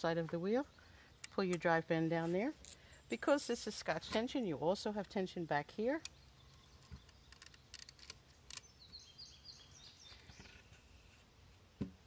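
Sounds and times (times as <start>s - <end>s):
faint wooden clicks: 1.2s - 1.7s, 6.0s - 9.0s
bird chirping: 2.6s - 11.1s.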